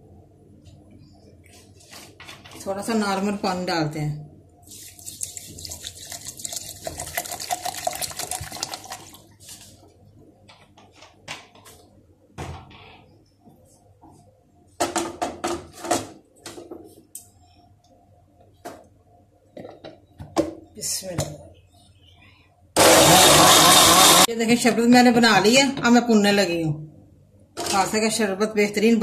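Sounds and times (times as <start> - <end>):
water pouring into plastic jar: 4.7 - 9.2.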